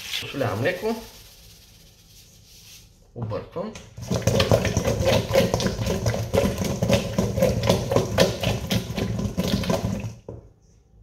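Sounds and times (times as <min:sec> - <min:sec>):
potatoes knocking in a steel bowl: 0:03.9 - 0:10.4.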